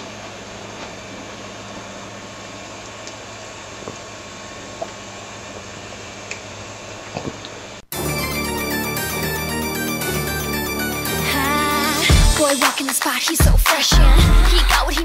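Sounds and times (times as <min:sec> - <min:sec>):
room tone hiss and hum: 0:00.0 - 0:12.5
loud music: 0:07.9 - 0:15.0.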